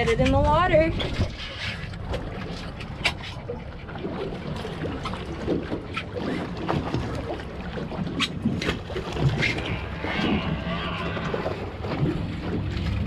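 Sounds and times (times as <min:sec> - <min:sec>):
wind and water rumble: 0:00.0 - 0:13.0.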